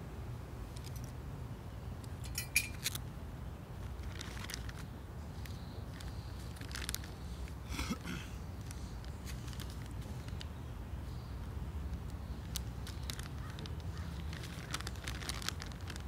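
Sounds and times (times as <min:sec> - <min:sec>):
bag rummaging clicks and rustles: 0:03.8 - 0:10.5, 0:12.4 - 0:16.0.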